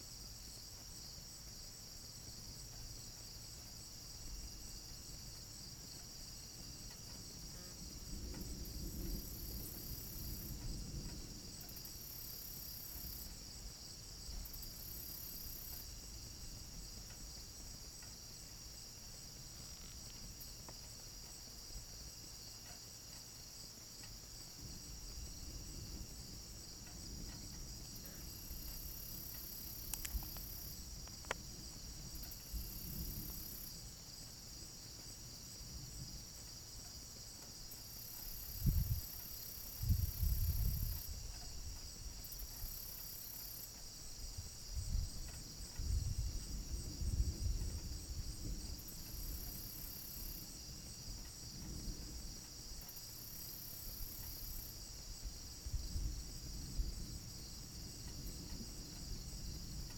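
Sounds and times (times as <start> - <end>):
crickets chirring: 0.0 - 59.9
distant thunder rumbling: 7.2 - 13.5
sharp clicks: 29.8 - 30.5.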